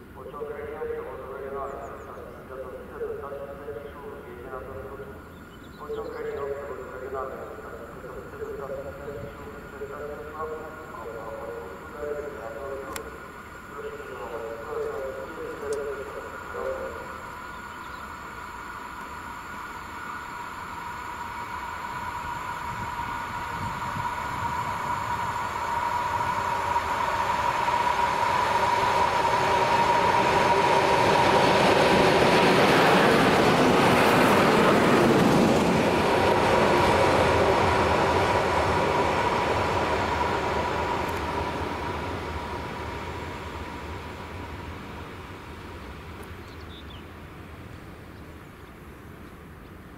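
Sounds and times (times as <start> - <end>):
electric train passing: 0.0 - 49.9
steady high hum: 6.4 - 35.1.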